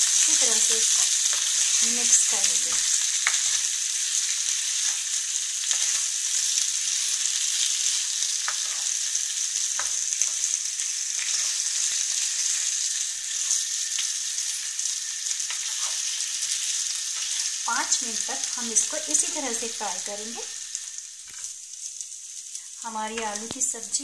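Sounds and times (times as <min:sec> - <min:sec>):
potatoes sizzling in a pan: 0:00.0 - 0:24.0
spatula scraping a pan: 0:15.5 - 0:17.6.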